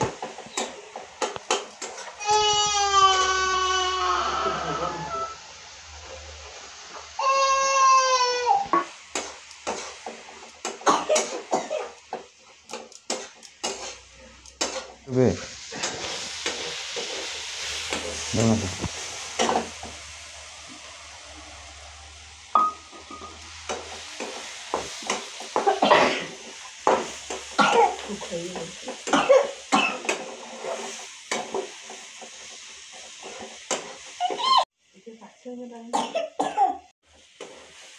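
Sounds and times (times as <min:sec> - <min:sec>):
oil sizzling: 0:00.0 - 0:37.9
spatula scraping metal pan: 0:12.7 - 0:15.0.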